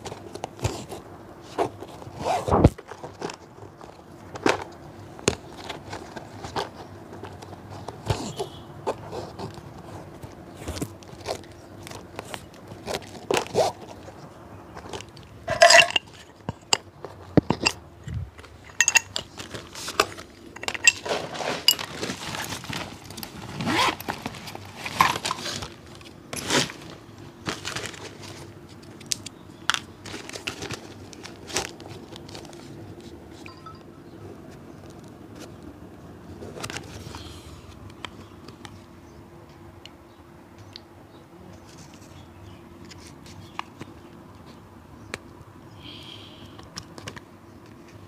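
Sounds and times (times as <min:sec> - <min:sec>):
faint steady hum: 0:00.0 - 0:48.0.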